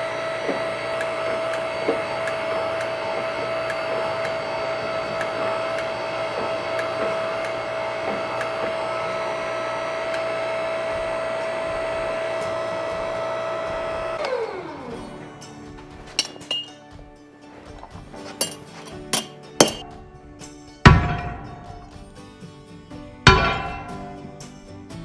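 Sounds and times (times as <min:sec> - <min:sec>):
drill press motor spinning: 0:00.0 - 0:19.8.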